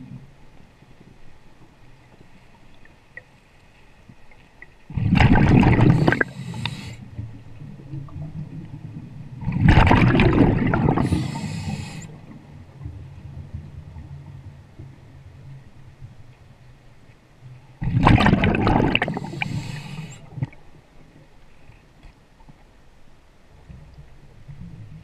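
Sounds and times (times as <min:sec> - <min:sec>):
low steady rumble: 0:00.0 - 0:17.8
exhaust bubbles rushing: 0:04.9 - 0:06.3, 0:09.4 - 0:11.2, 0:17.8 - 0:19.3.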